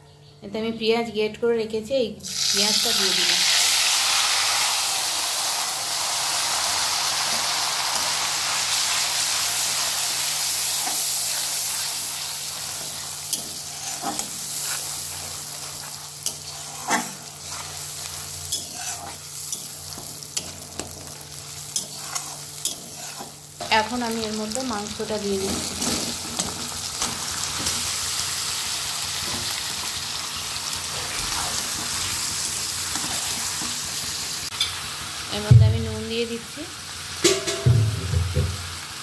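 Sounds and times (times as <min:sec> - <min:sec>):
onion sizzling in hot oil: 0:02.2 - 0:39.0
metal spatula scraping a pan: 0:10.6 - 0:23.5.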